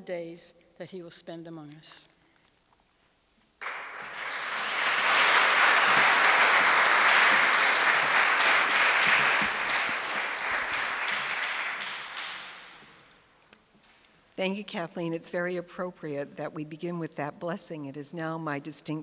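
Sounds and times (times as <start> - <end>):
audience applauding: 3.6 - 13.2.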